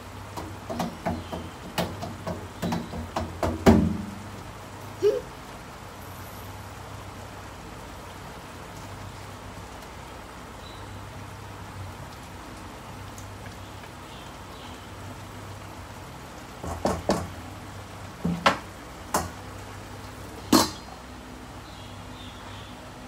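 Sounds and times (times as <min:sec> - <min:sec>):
spatula knocking against wok: 0:00.4 - 0:04.0
food sizzling in a wok: 0:04.0 - 0:09.6.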